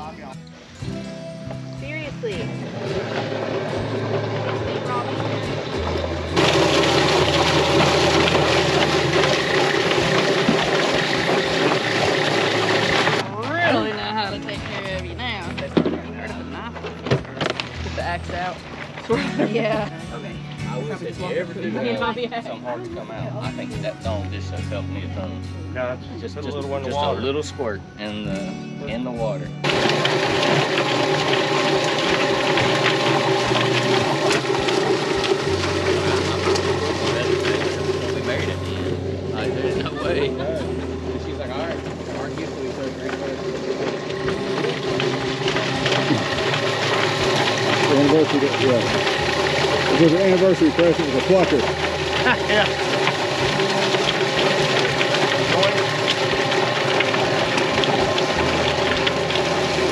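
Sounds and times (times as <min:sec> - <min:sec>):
motor hum: 0:00.0 - 0:27.4, 0:28.1 - 0:59.9
hose spraying water: 0:02.3 - 0:13.2, 0:29.6 - 0:40.6, 0:41.3 - 0:59.9.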